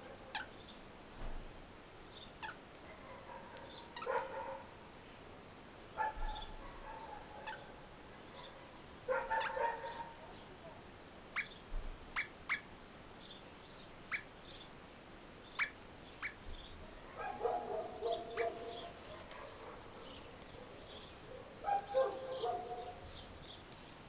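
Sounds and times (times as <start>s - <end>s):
parrot chirping: 3.7s - 4.3s, 17.2s - 19.2s.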